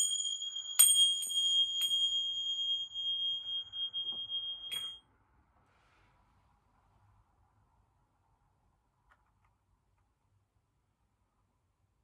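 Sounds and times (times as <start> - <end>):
cymbals ringing: 0.0 - 5.0.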